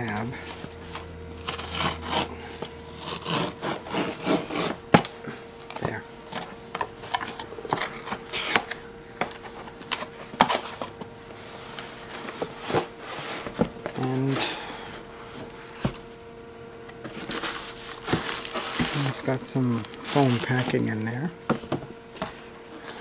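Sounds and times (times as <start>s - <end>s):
cardboard tearing and rubbing: 0.4s - 5.0s, 17.1s - 21.0s.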